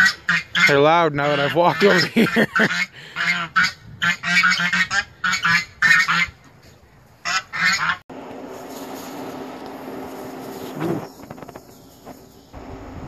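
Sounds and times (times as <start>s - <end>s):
geese honking: 0.0s - 6.4s, 7.2s - 8.0s
steady low hum: 8.1s - 13.0s.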